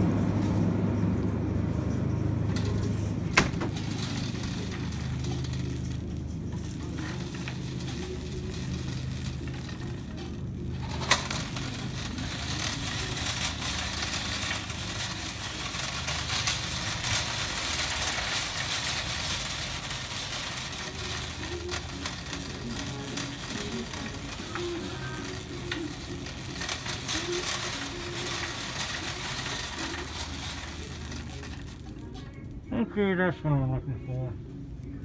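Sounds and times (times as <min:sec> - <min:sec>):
low hum: 0:00.0 - 0:35.0
shopping cart rolling and rattling: 0:02.5 - 0:32.6.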